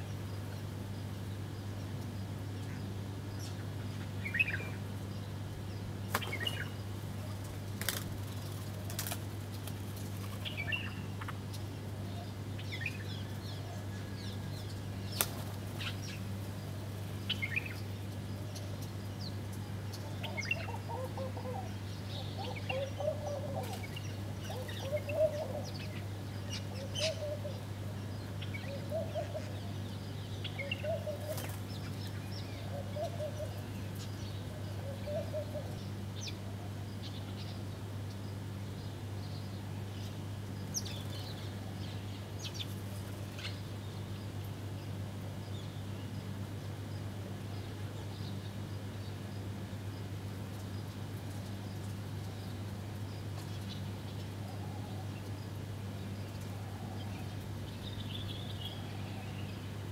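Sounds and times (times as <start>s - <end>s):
small birds chirping: 0.0s - 59.9s
steady low hum: 0.0s - 59.9s
doves cooing: 6.2s - 35.8s.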